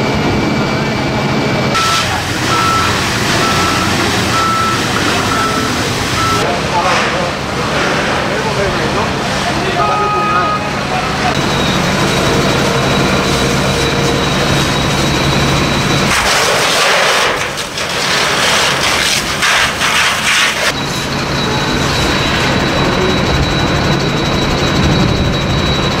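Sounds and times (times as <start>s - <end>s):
mechanical drone with whine: 0.0s - 26.0s
fire hose water jet hissing: 16.1s - 20.7s.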